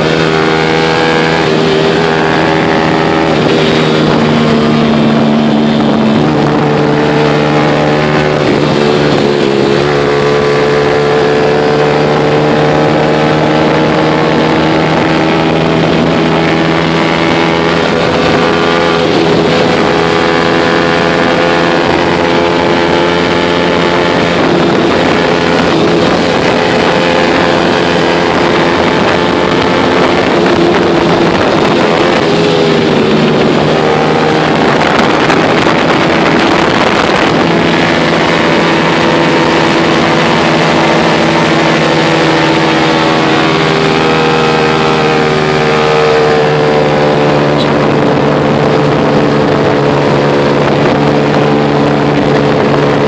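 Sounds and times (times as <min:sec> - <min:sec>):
motorcycle engine running: 0:00.0 - 0:53.0
wind noise on microphone: 0:00.0 - 0:53.0.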